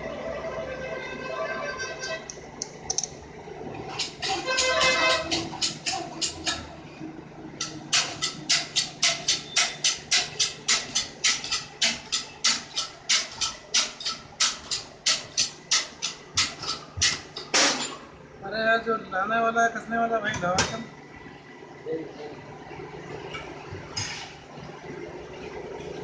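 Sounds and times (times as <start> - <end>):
rhythmic rasping strokes: 3.9 - 6.8, 7.6 - 17.7.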